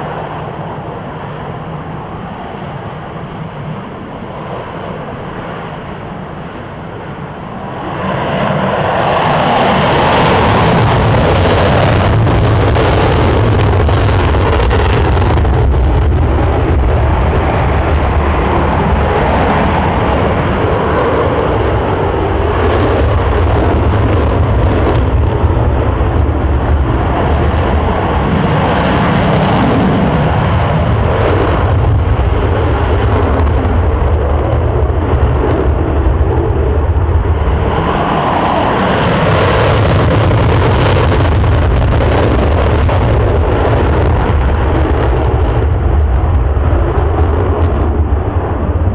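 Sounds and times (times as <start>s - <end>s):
jet engines running: 0.0s - 48.9s.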